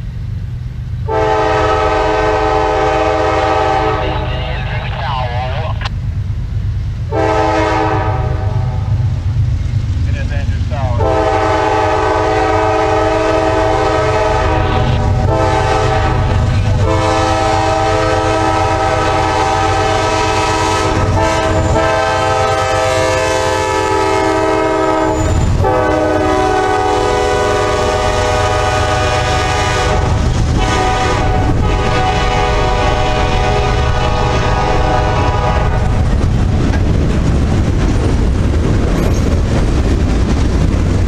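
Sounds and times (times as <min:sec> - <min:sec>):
passing train rumble: 0:00.0 - 0:41.0
locomotive horn blasts: 0:01.1 - 0:04.5, 0:07.1 - 0:08.8, 0:11.0 - 0:36.0.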